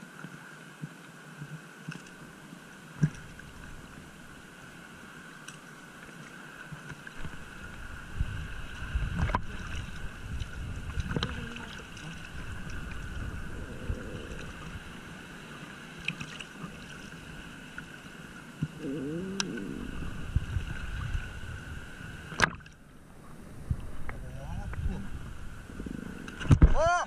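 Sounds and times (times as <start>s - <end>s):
water lapping and sloshing: 0.0s - 27.0s
wind rumbling on microphone: 7.2s - 17.7s, 18.6s - 27.0s.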